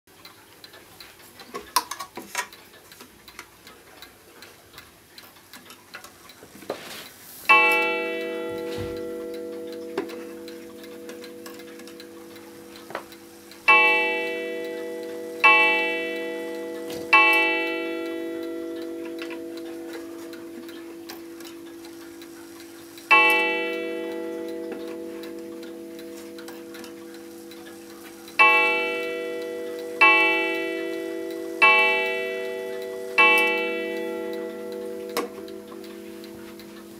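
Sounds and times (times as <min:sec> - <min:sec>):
clock ticking: 0:00.1 - 0:36.9
clock striking metallic tone: 0:07.5 - 0:36.9.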